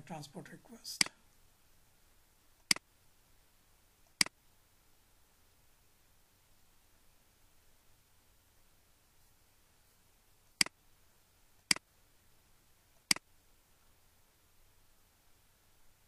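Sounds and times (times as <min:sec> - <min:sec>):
computer mouse clicks: 0:04.1 - 0:04.4, 0:11.6 - 0:11.9, 0:13.0 - 0:13.3.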